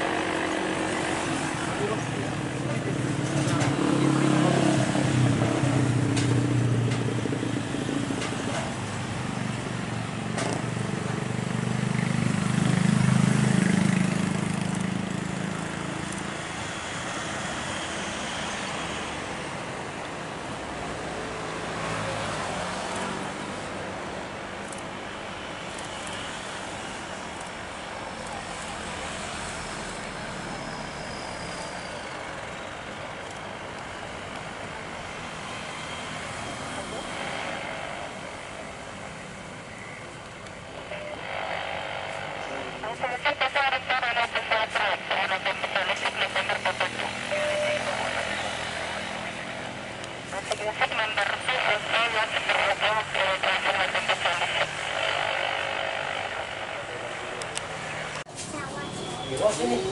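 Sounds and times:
engine rumble: 0.0s - 16.4s.

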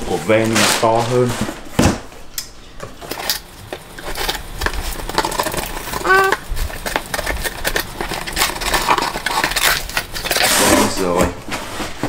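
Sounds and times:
packing tape pulled off: 3.2s - 11.0s
person vocal sound: 6.0s - 6.4s.

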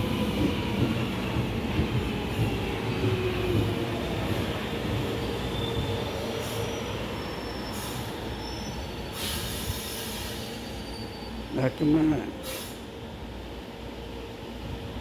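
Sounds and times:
subway train wheels rumbling: 0.0s - 15.0s.

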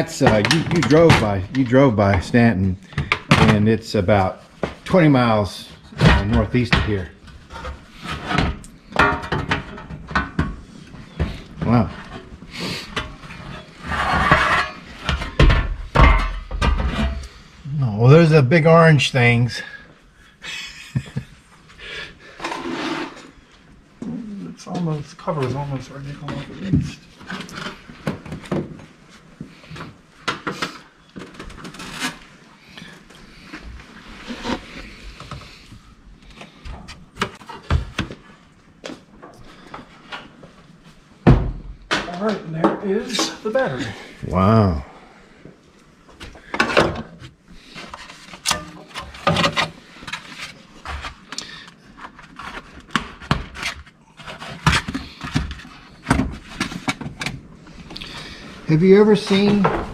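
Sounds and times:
metal panels scraping: 13.0s - 17.2s.

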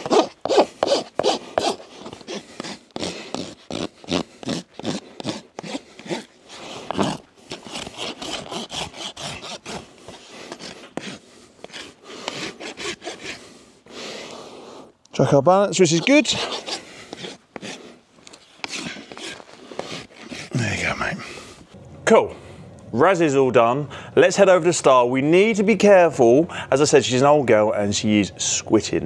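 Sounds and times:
rasp filing hoof: 0.0s - 14.8s, 15.9s - 20.5s.

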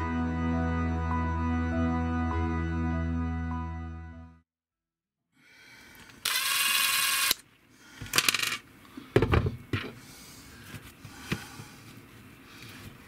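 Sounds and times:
tools clattering on tabletop: 8.0s - 8.6s.

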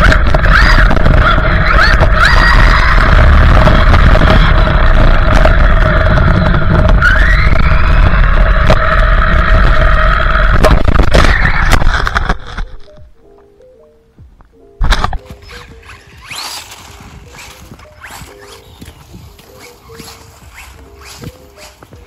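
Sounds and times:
electric motor whining: 0.0s - 12.4s, 15.2s - 22.0s
tyre and wind noise: 0.0s - 13.2s, 14.2s - 22.0s
faint music: 12.4s - 22.0s.

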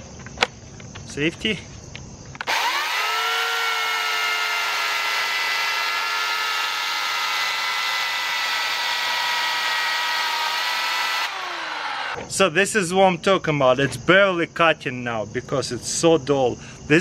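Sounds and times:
electric chainsaw whining: 2.4s - 12.2s.

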